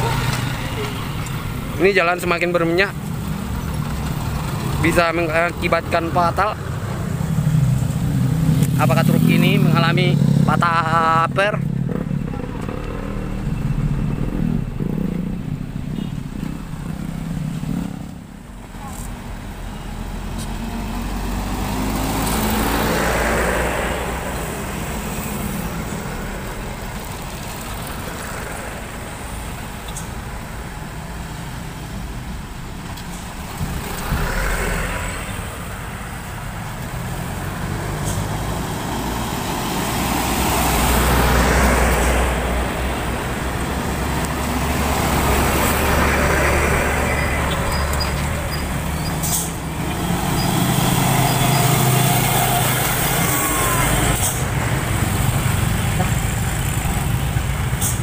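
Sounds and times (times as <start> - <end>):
diesel trucks driving past: 0.0 - 58.0
car driving past: 33.4 - 58.0.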